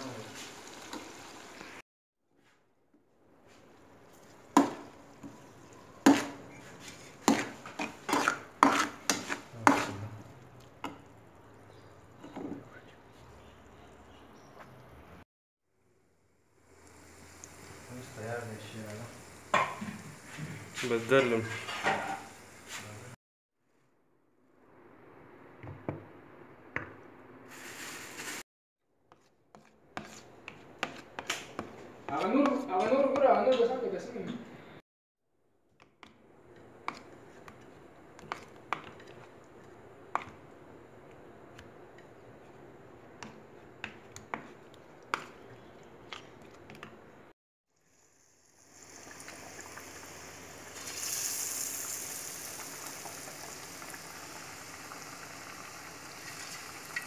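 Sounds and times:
metal spatula scraping frying pan: 7.3 - 10.0.

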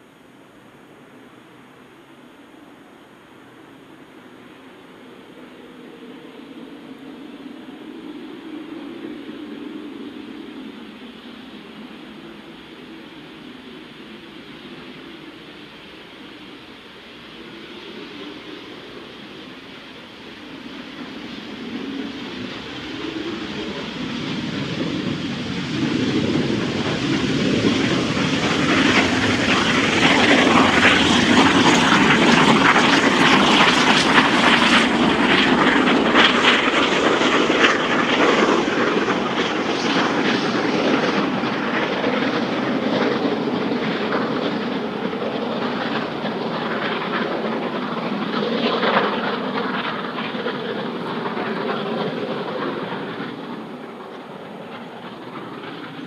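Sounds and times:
steam locomotive exhaust beating: 12.2 - 56.0.

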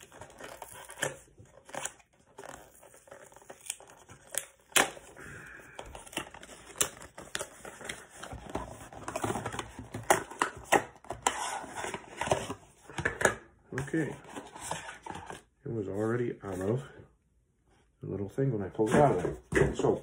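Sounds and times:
crinkling and rustling: 0.0 - 13.0.

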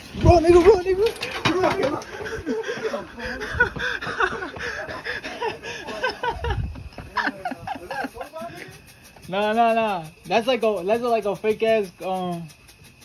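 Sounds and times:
young men laughing: 0.5 - 9.0.

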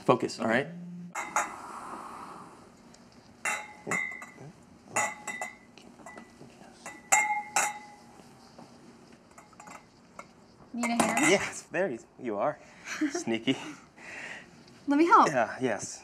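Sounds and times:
wine glasses clinking: 1.1 - 1.6, 3.4 - 8.0, 10.8 - 11.6.

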